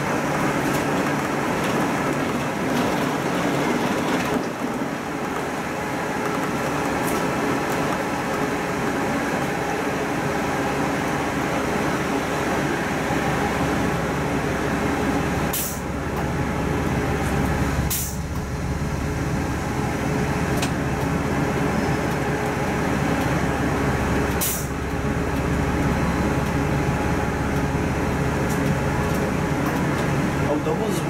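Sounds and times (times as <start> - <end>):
bus engine and road noise: 0.0 - 31.0
short air hisses: 15.5 - 15.8, 17.9 - 18.2, 24.4 - 24.7.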